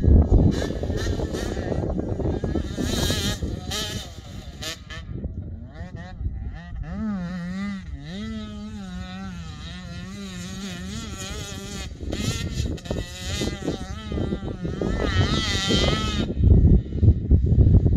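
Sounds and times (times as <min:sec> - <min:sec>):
rough uneven noise: 0:00.0 - 0:16.4
dirt bike engine revving: 0:00.0 - 0:17.9.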